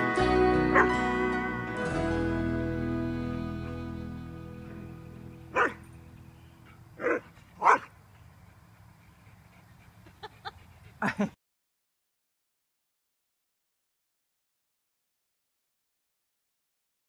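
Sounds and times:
dog barking: 5.5s - 5.8s, 7.0s - 7.9s.

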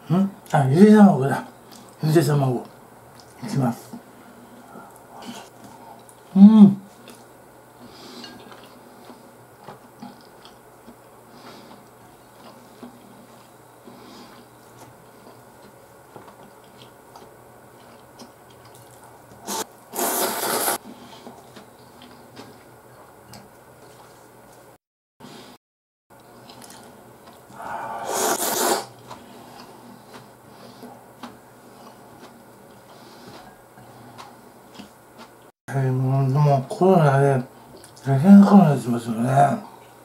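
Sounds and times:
quiet chewing: 1.4s - 2.0s, 2.6s - 24.7s, 26.2s - 35.5s, 37.6s - 38.1s
noodle slurps: 19.4s - 20.8s, 27.6s - 29.0s.

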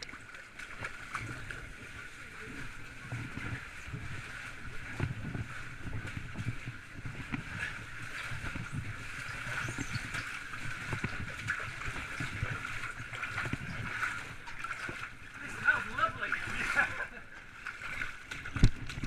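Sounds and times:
water sloshing and gurgling: 0.0s - 19.0s.

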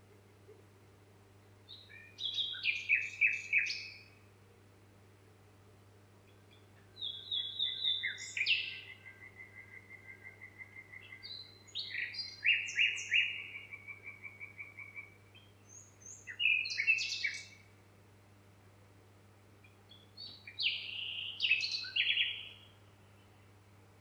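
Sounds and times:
songbird trills and chirps: 1.6s - 4.2s, 6.2s - 17.7s, 19.6s - 23.5s.

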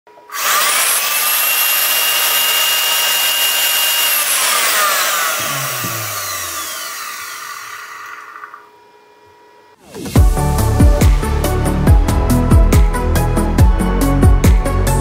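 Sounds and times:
vacuum cleaner motor whining: 0.1s - 9.8s.

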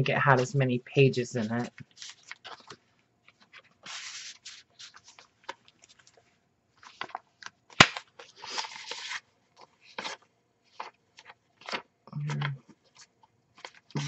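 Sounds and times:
paper rustling and crinkling: 1.4s - 14.0s
sharp paper snap: 7.7s - 9.2s.

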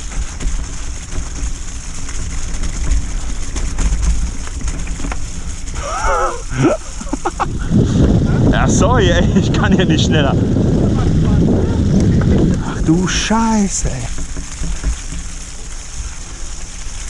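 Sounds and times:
bike rattling clicks: 0.0s - 7.6s, 10.5s - 17.0s
bike tyres rumbling on trail: 0.0s - 17.0s
wind on microphone: 2.7s - 15.4s
wavering cry: 5.8s - 6.9s.

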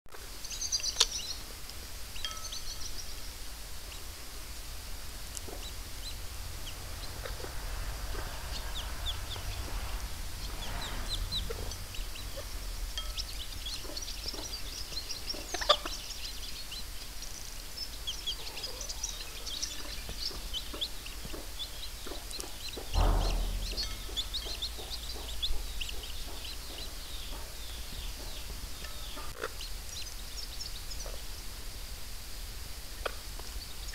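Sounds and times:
chicks peeping: 0.2s - 31.7s
dull thump: 22.9s - 25.3s.

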